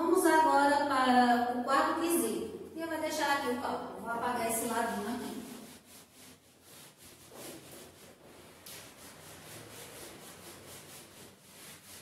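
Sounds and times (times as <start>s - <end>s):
eraser rubbing whiteboard: 4.5s - 12.0s.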